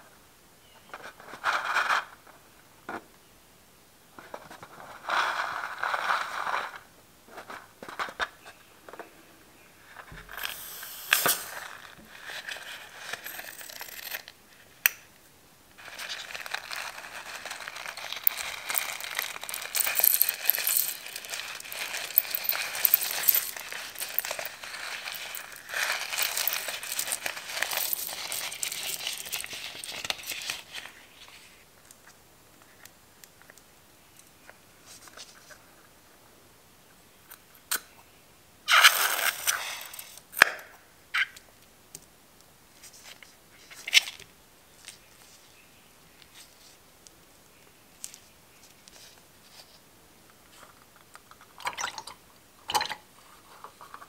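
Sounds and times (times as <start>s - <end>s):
balloon crinkling and crackling: 15.8s - 30.9s.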